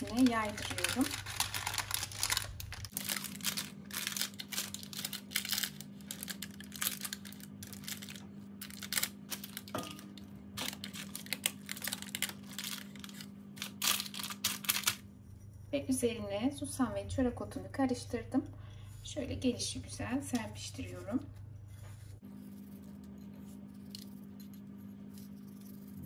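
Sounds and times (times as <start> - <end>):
baking paper crinkling: 0.0 - 15.1.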